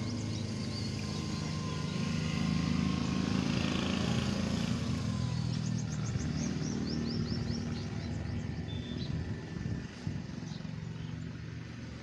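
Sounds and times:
vehicle engine running: 0.0s - 12.0s
high bird chirps: 5.7s - 9.2s.

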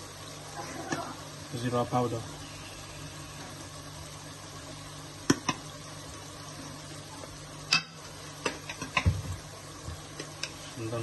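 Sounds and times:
spices sizzling in oil: 0.0s - 11.0s
utensil striking pan: 5.2s - 5.6s, 7.6s - 9.2s, 10.2s - 10.6s.

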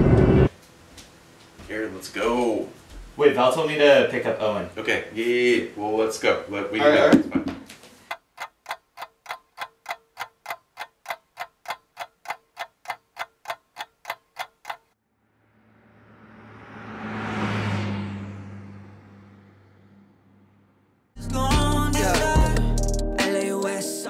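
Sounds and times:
clock ticking: 8.1s - 15.0s
rushing sound with low hum: 15.1s - 21.1s.

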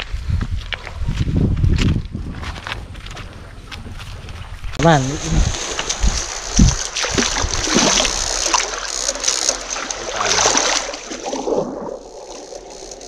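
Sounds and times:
water splashing around legs: 3.8s - 12.7s.

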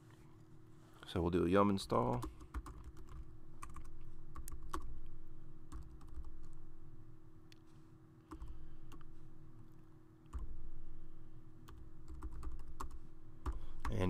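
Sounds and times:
faint steady hum: 0.0s - 14.0s
computer keyboard typing: 2.0s - 5.1s, 5.7s - 6.6s, 8.3s - 9.1s, 11.6s - 14.0s.

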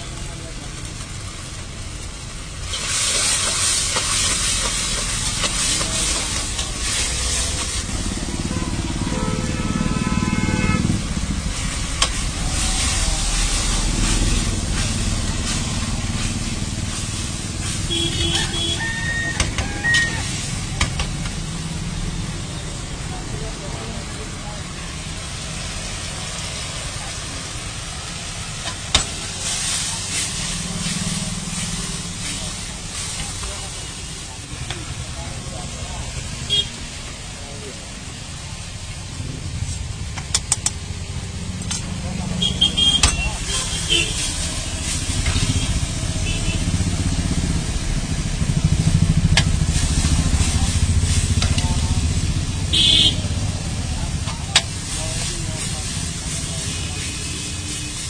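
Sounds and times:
food sizzling in hot oil: 0.1s - 9.3s, 10.9s - 23.0s, 24.0s - 40.1s, 40.8s - 58.0s.

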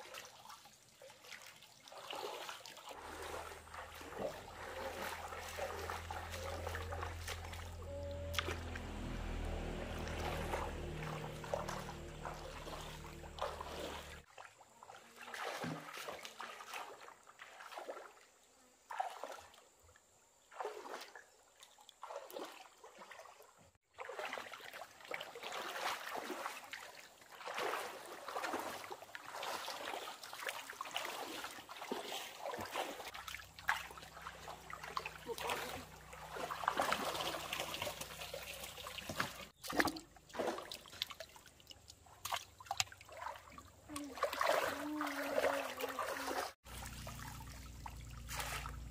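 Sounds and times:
pond water splashing: 0.0s - 48.9s
low steady hum: 3.0s - 14.2s.

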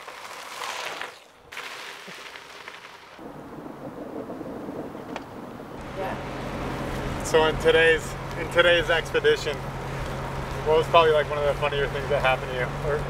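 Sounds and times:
bike tyres crunching on gravel: 0.0s - 3.4s, 5.8s - 13.0s.

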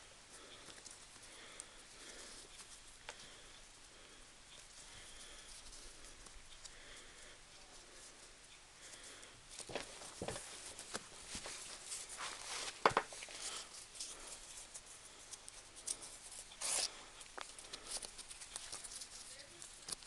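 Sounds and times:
shoes scuffing and rubbing: 9.6s - 13.2s.

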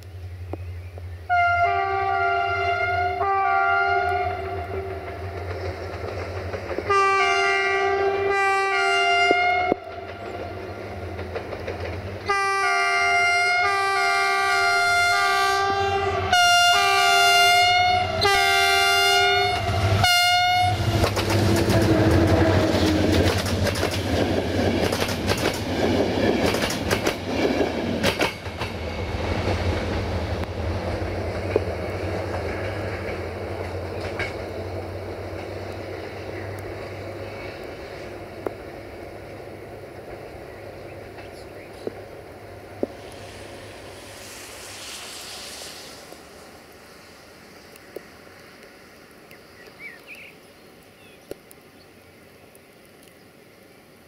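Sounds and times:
locomotive multi-tone horn blasts: 1.3s - 5.1s, 6.8s - 10.1s, 12.2s - 23.2s
train wheels clicking on rails: 4.8s - 8.0s, 9.2s - 13.0s, 19.5s - 48.8s.

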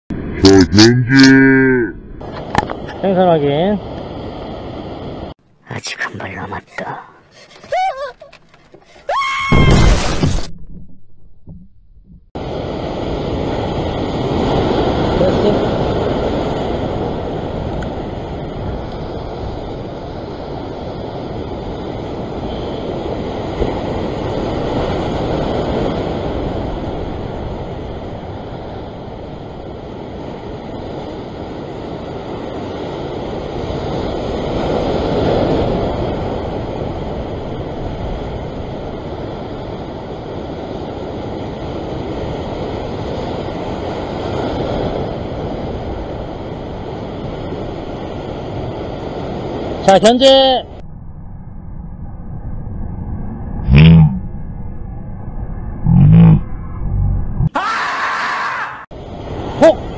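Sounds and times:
ocean surf breaking on rocks: 12.4s - 50.8s, 57.8s - 59.9s.

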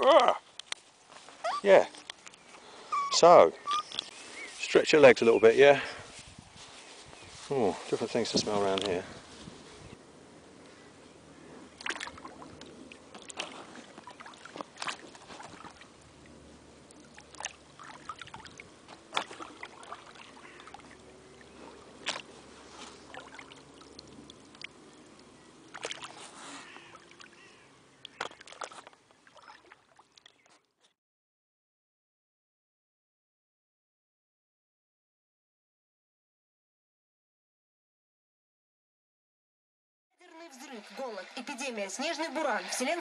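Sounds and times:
paddle splashing in water: 11.7s - 30.7s
water trickling: 11.7s - 30.8s.

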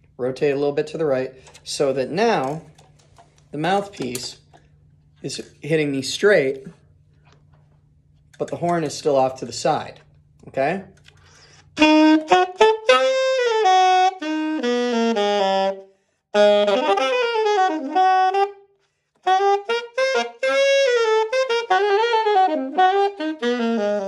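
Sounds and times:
alto saxophone solo: 11.6s - 24.0s.

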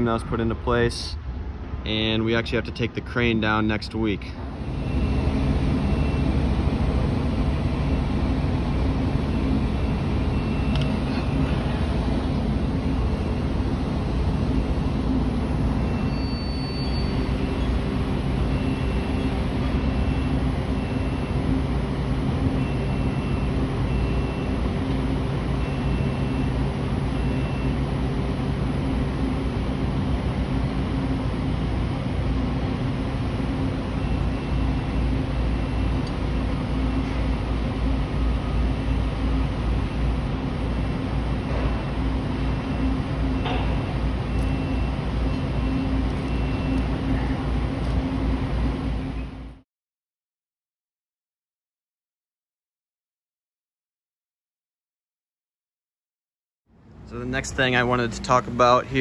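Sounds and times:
diesel construction machinery running: 0.0s - 49.6s, 56.8s - 59.0s
high electronic warning beeps: 4.6s - 6.7s, 7.6s - 13.6s, 14.4s - 28.0s, 33.5s - 37.2s, 42.4s - 48.3s.

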